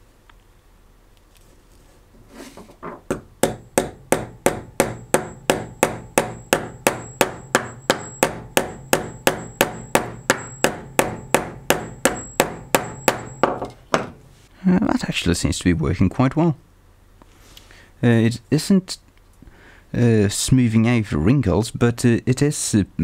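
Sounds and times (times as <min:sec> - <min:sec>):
hammer tapping metal pipe: 0:03.0 - 0:14.2.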